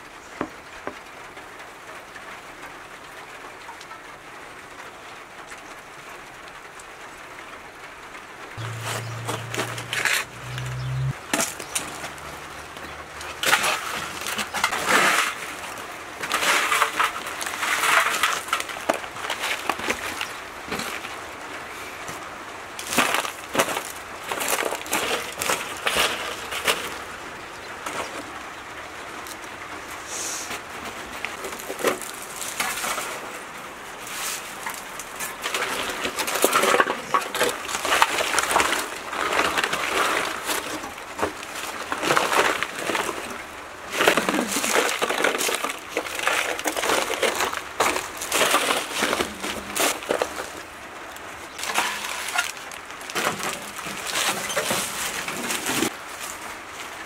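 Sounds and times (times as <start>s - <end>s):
aluminium foil crinkling: 8.6s - 21.4s, 22.8s - 27.2s, 31.2s - 56.9s
dry clay crust cracking: 8.6s - 22.2s, 22.8s - 28.4s, 31.2s - 33.4s, 34.0s - 56.4s.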